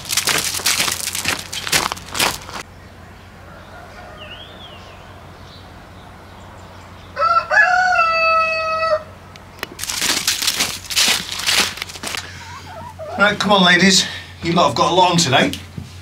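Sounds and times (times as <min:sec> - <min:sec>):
crunching: 0:00.0 - 0:02.7, 0:09.6 - 0:12.4
rooster crowing: 0:03.4 - 0:05.2, 0:07.2 - 0:09.2.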